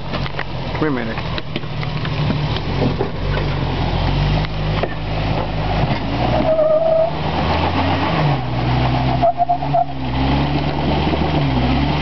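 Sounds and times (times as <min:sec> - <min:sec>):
engine running at low revs: 0:00.0 - 0:12.0
short high squeal: 0:06.3 - 0:07.2, 0:09.0 - 0:10.0.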